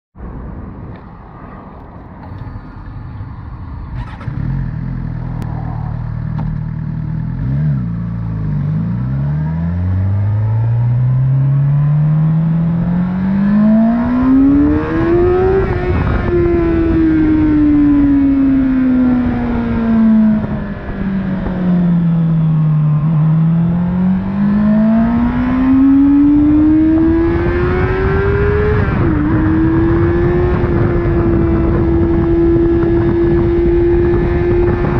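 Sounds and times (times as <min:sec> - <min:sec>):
motorcycle engine revving: 0:03.7 - 0:34.9
wind noise: 0:10.3 - 0:34.9.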